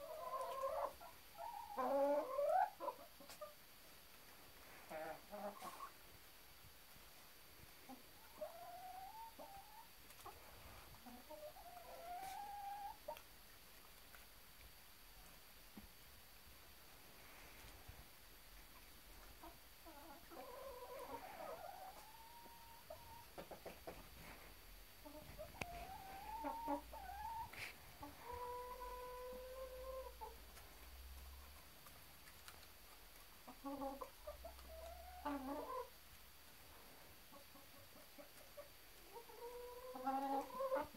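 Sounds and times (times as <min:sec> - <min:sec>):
chicken calling: 0:00.0 - 0:03.6, 0:07.9 - 0:10.4, 0:11.0 - 0:13.2, 0:19.4 - 0:24.0, 0:25.0 - 0:30.4, 0:33.5 - 0:36.0, 0:37.3 - 0:40.9
hens clucking: 0:00.0 - 0:03.7, 0:04.8 - 0:06.1, 0:07.8 - 0:13.3, 0:18.7 - 0:36.0, 0:37.2 - 0:40.9
hens calling: 0:25.1 - 0:30.4, 0:33.5 - 0:36.0, 0:39.0 - 0:40.9.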